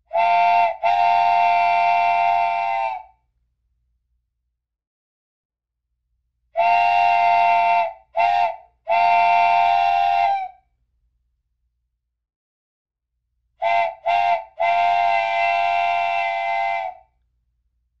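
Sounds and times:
steam train whistle: 0:00.0 - 0:03.2, 0:06.6 - 0:10.6, 0:13.6 - 0:17.1.

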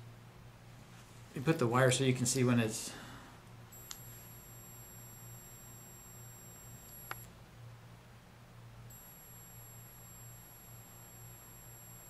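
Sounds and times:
high-pitched inverter whine: 0:03.7 - 0:07.4, 0:08.9 - 0:12.0.

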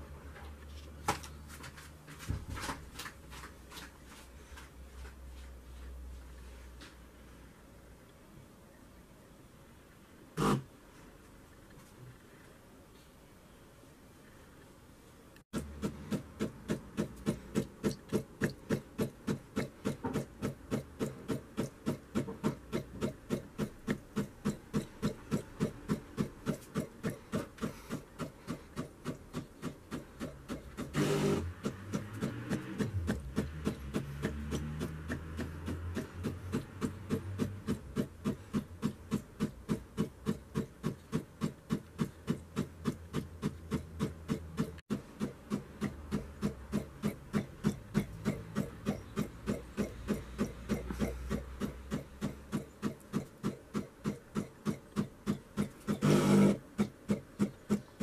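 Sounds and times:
coffee machine pump pulsing: 0:15.6 - 0:58.0.

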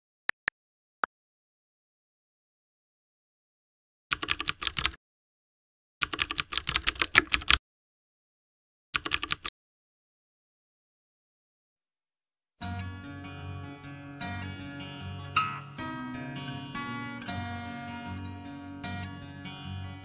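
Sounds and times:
keyboard key clicks: 0:06.0 - 0:07.6.

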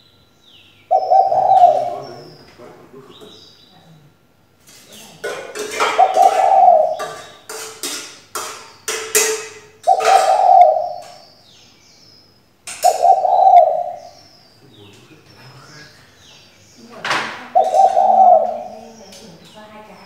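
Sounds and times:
dove cooing: 0:00.9 - 0:03.4, 0:05.1 - 0:07.6, 0:09.1 - 0:11.2, 0:12.7 - 0:14.2, 0:16.9 - 0:20.0.

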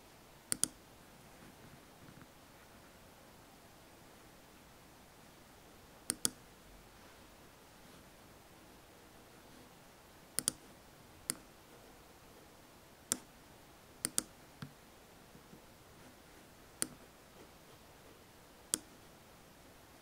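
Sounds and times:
computer mouse clicks: 0:00.5 - 0:00.8, 0:06.1 - 0:06.4, 0:10.4 - 0:10.6, 0:14.0 - 0:14.8, 0:16.8 - 0:17.0.

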